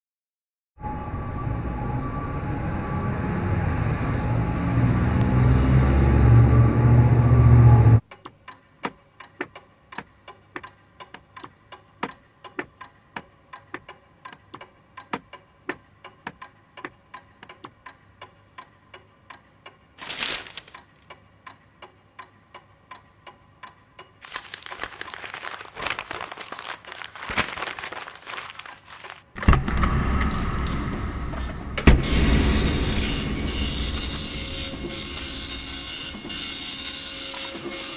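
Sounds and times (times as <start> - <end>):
loud traffic rumble: 0.9 - 8.0
clock ticking: 8.0 - 20.0, 20.7 - 24.2.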